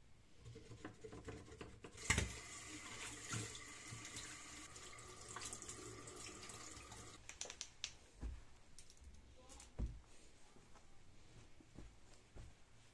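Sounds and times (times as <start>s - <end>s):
faucet running into sink: 1.1s - 7.2s
light taps and clicks: 7.2s - 9.0s.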